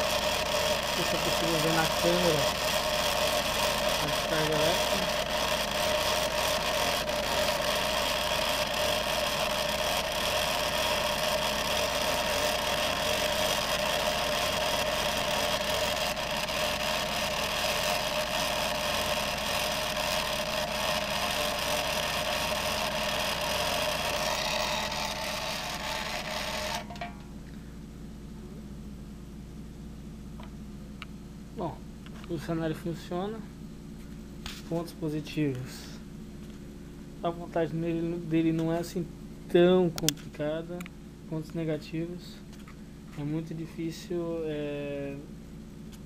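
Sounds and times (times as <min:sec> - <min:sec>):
small electric motor whining: 0:00.0 - 0:27.1.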